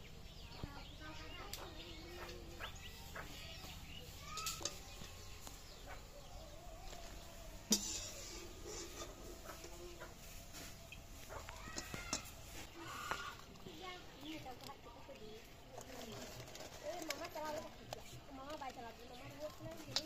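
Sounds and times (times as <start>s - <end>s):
hens clucking: 1.0s - 14.9s.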